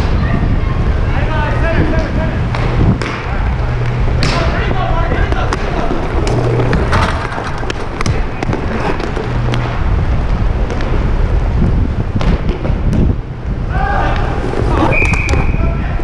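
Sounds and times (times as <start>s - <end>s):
skate wheels rumbling: 0.0s - 16.0s
sticks and puck clacking: 1.9s - 9.8s.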